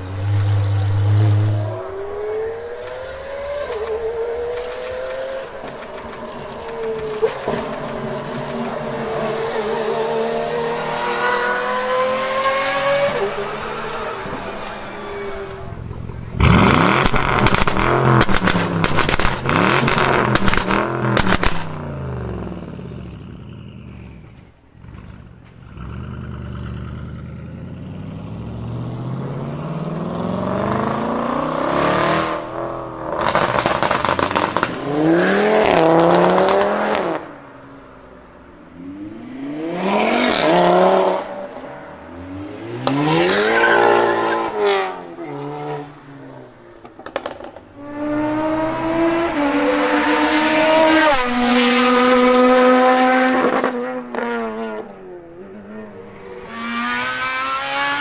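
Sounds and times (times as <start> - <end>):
second car engine revving: 0.0 - 37.4, 46.8 - 58.0
car engine revving: 0.0 - 37.5, 38.6 - 58.0
exhaust pops and crackles: 16.4 - 21.8, 33.2 - 34.8, 46.8 - 47.7.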